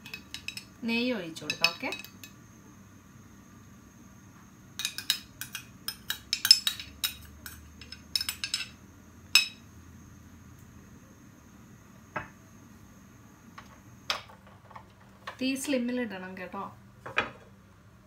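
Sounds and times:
metal spoon clinking on glass: 0:00.0 - 0:00.7, 0:01.4 - 0:02.4, 0:04.8 - 0:08.8.

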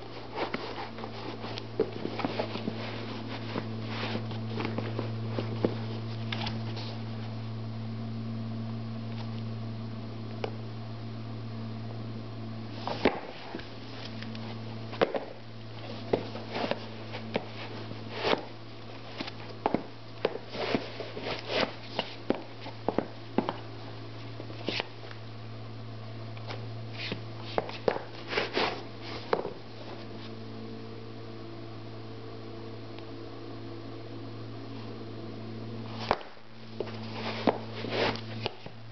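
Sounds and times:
steady low hum: 0:00.0 - 0:38.9
sneakers tapping on tile floor: 0:27.1 - 0:28.2.

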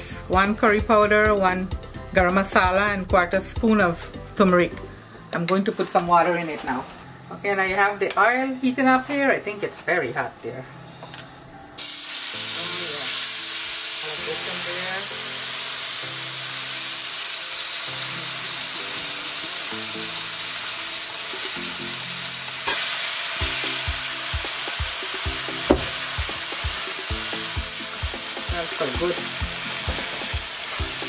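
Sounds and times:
paste sizzling in hot oil: 0:11.8 - 0:31.0
spatula knocking against pan: 0:25.6 - 0:26.0.

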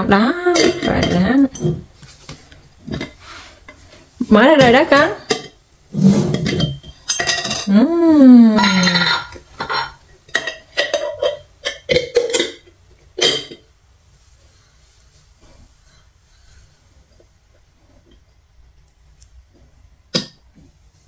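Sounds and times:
glass jars and lids clinking: 0:06.3 - 0:07.8, 0:08.6 - 0:13.7.

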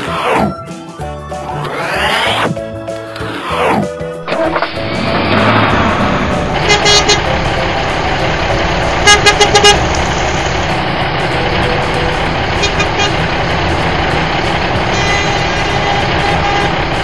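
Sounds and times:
truck engine rumble: 0:01.4 - 0:17.0
truck horn tooting: 0:05.4 - 0:07.6, 0:08.7 - 0:10.4, 0:12.5 - 0:13.4, 0:14.7 - 0:17.0.

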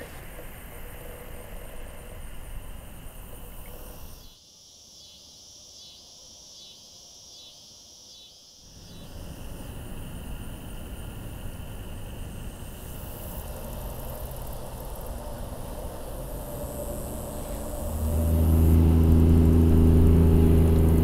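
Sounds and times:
pulsing insect call: 0:00.0 - 0:21.0
low rumbling ambient noise: 0:08.8 - 0:21.0.

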